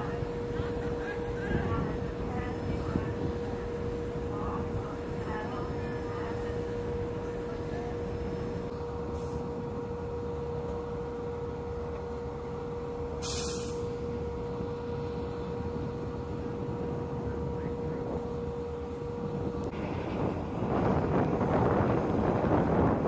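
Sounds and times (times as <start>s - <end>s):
ship machinery drone: 0.0s - 23.0s
short burst of hiss: 13.2s - 13.9s.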